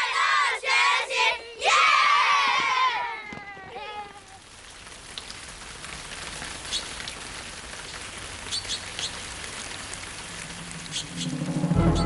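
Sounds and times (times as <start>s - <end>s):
rain-like forest hiss: 0.0s - 12.0s
high bird chirps: 10.8s - 12.0s.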